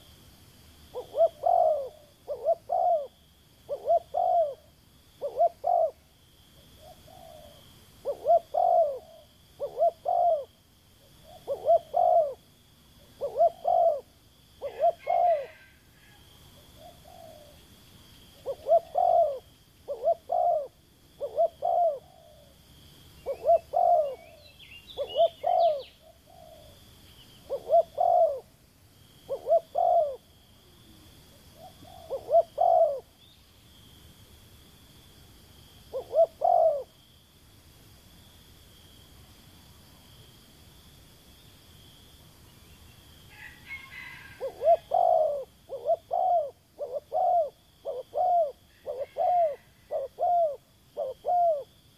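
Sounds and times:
dove cooing: 0:00.9 - 0:06.0, 0:06.6 - 0:17.6, 0:18.4 - 0:22.6, 0:23.2 - 0:28.5, 0:29.3 - 0:33.2, 0:35.9 - 0:37.0, 0:43.3 - 0:51.8.

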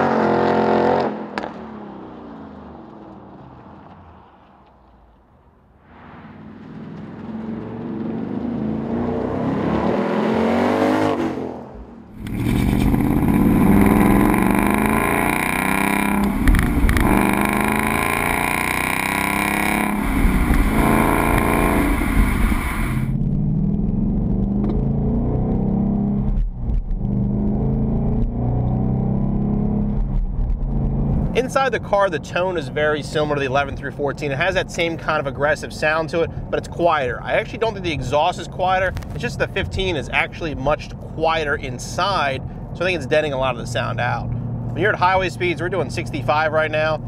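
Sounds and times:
car engine accelerating: 0:06.1 - 0:34.4, 0:35.8 - 0:47.0
exhaust revving: 0:06.4 - 0:33.7, 0:37.1 - 0:47.0.

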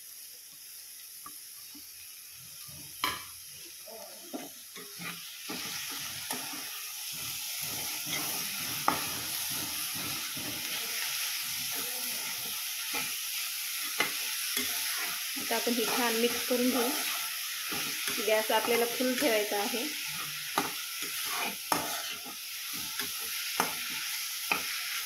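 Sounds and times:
spinach sizzling in hot oil: 0:00.0 - 0:25.0
spatula scraping and tapping pan: 0:04.3 - 0:13.2, 0:13.8 - 0:25.0.

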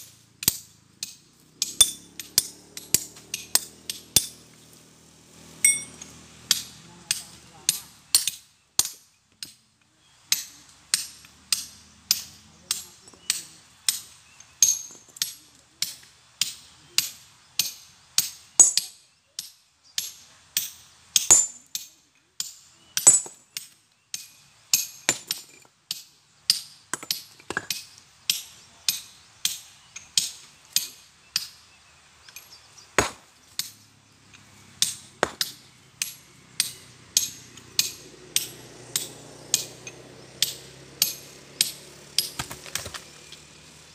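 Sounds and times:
hammer clinking on steel chisel: 0:05.6 - 0:09.0, 0:18.6 - 0:18.9
sledgehammer blows on rock: 0:32.9 - 0:33.7.

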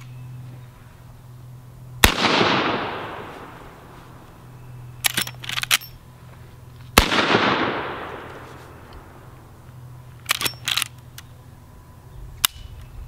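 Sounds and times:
rifle shot with echo: 0:02.0 - 0:03.6, 0:07.0 - 0:08.5
rifle lever metallic clicks: 0:05.0 - 0:06.0, 0:10.2 - 0:11.3.

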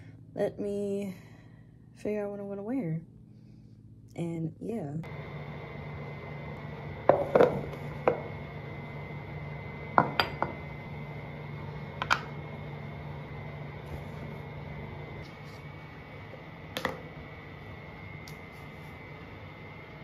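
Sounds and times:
low hum: 0:00.0 - 0:20.0
containers set down on countertop: 0:07.1 - 0:08.2.

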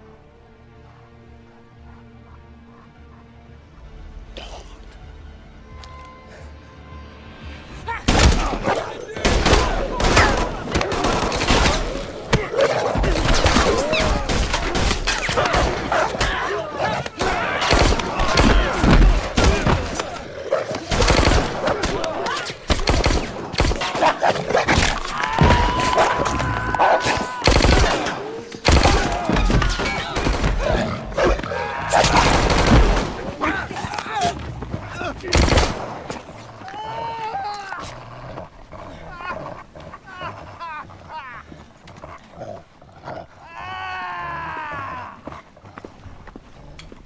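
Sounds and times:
gunshots: 0:08.1 - 0:26.4, 0:27.0 - 0:33.6, 0:35.2 - 0:36.3
men crying out: 0:25.0 - 0:32.6, 0:43.4 - 0:45.3
cries and yelps: 0:39.1 - 0:41.6, 0:43.4 - 0:45.3.

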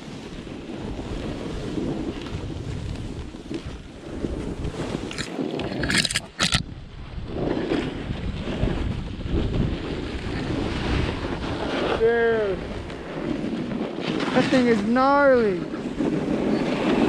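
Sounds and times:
wind rush on microphone: 0:00.0 - 0:17.0
sharp scraping bursts: 0:05.1 - 0:06.6.

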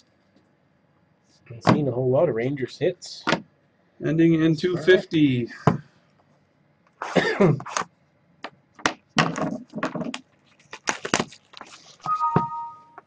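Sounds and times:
foil packs crinkling: 0:10.4 - 0:12.1.

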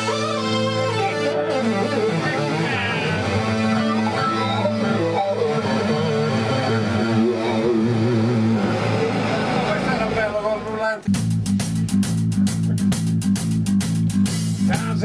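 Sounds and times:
wavering lead melody: 0:00.0 - 0:11.3
drums: 0:00.0 - 0:15.0
electric bass guitar: 0:00.0 - 0:15.0
keyboard: 0:00.0 - 0:15.0.

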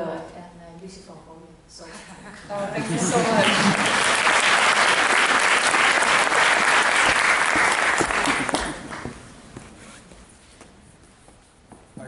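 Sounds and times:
audience applauding: 0:02.9 - 0:09.2.

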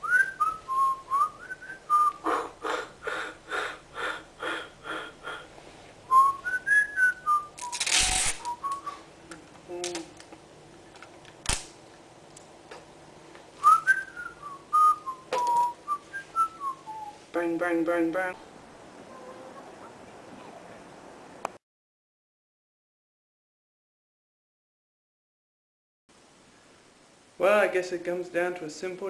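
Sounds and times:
man whistling a tune: 0:00.0 - 0:02.3, 0:06.1 - 0:07.8, 0:08.4 - 0:09.0, 0:13.6 - 0:17.2.

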